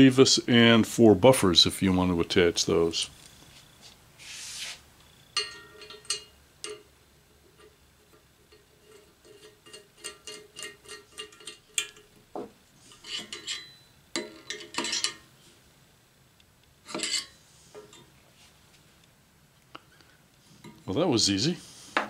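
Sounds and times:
metal parts clicking on steel plate: 0:07.6 - 0:12.2, 0:12.9 - 0:15.2.

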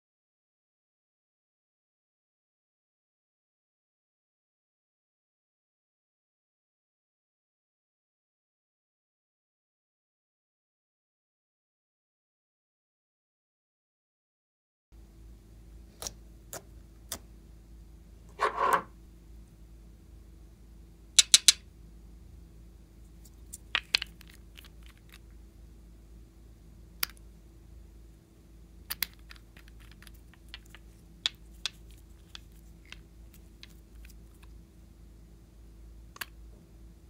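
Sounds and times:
faint steady hum: 0:15.0 - 0:37.0.

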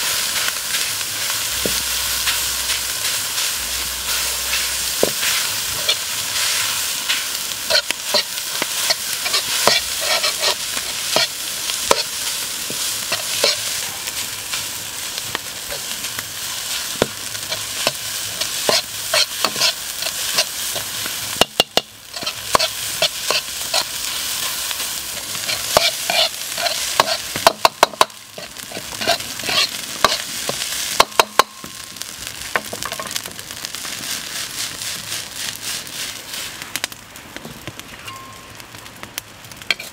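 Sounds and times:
fried rice sizzling in wok: 0:00.0 - 0:39.9
metal ladle scraping a pan: 0:01.6 - 0:14.3, 0:16.6 - 0:30.7, 0:39.7 - 0:39.9.

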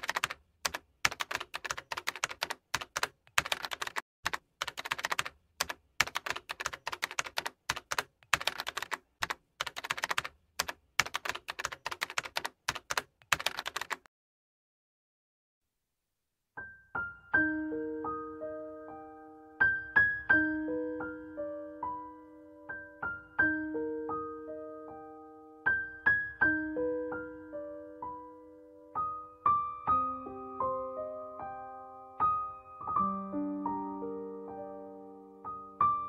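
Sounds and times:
keyboard typing clicks: 0:00.0 - 0:14.1.

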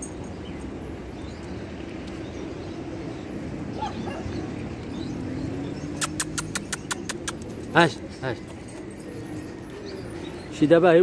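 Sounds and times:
sharp clicks: 0:06.0 - 0:07.5.

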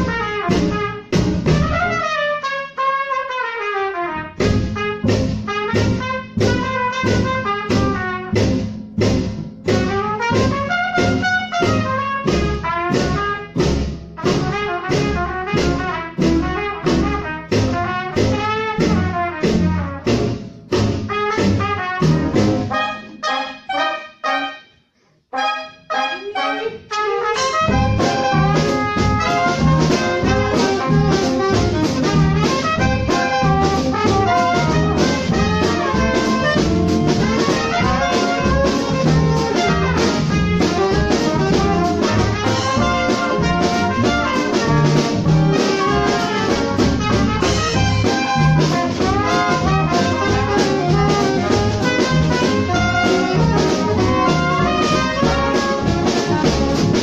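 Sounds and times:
double bass: 0:00.0 - 0:02.2, 0:04.0 - 0:24.1, 0:25.5 - 0:57.0
trumpet: 0:00.0 - 0:08.6, 0:09.6 - 0:57.0
drums swing beat: 0:00.0 - 0:24.4, 0:25.9 - 0:57.0
trombone: 0:00.0 - 0:57.0
soprano saxophone: 0:25.3 - 0:28.8
piano: 0:27.5 - 0:57.0.

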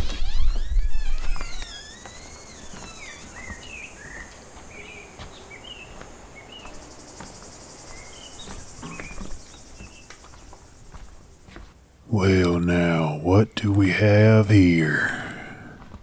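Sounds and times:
insects trilling: 0:00.0 - 0:15.6
bird chirps: 0:00.4 - 0:11.6.

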